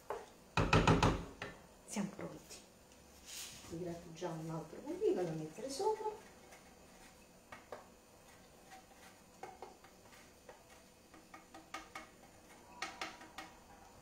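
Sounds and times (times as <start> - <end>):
cheese grating scrapes: 5.6 - 7.3, 8.2 - 11.0.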